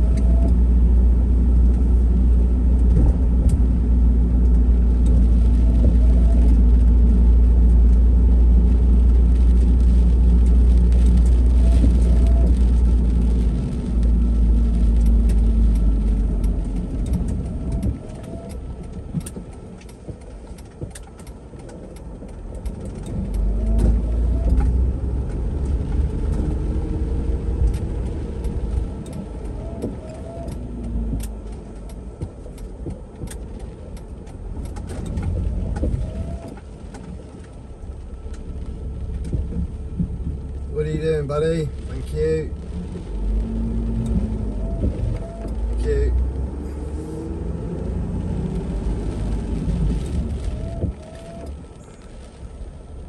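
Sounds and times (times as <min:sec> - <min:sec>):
cars passing: 0:00.0 - 0:53.0
traffic rumble on wet road: 0:00.0 - 0:53.0.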